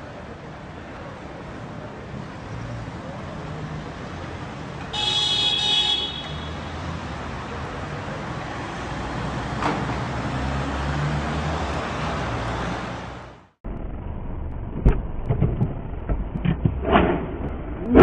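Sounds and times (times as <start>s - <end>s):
street traffic: 0.0s - 18.0s
car horn: 4.9s - 6.9s.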